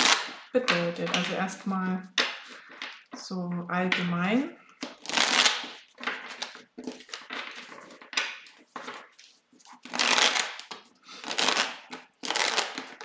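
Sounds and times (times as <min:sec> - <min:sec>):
cards being shuffled: 0:00.0 - 0:01.6, 0:04.8 - 0:13.0.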